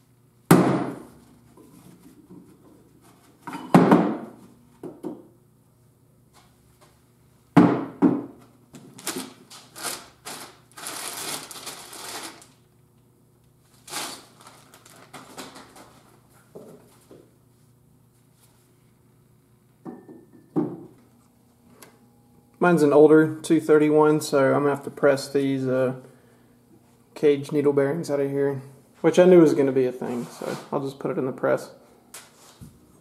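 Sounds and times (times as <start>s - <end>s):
metal knocks on workbench: 19.8s - 20.9s.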